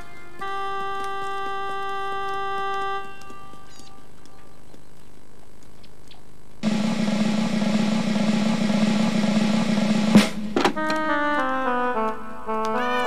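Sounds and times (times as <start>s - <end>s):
cymbal crash: 6.6s - 10.6s
snare drum roll: 6.6s - 11.0s.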